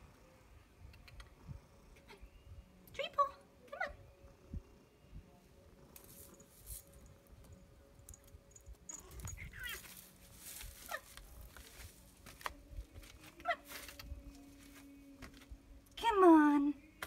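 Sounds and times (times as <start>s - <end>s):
pet high-pitched cries: 9.1s - 9.9s.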